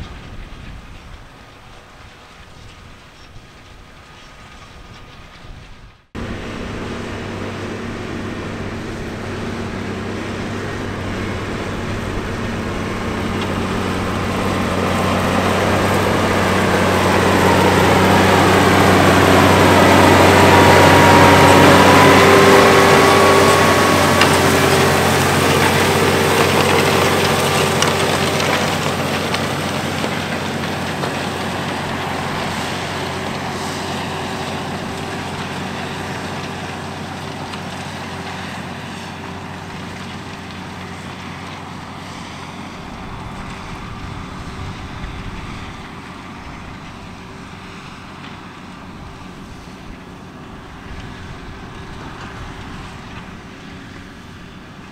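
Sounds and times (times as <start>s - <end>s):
tractor diesel engine under load: 0.0s - 54.9s
whine bending in pitch: 6.2s - 36.1s.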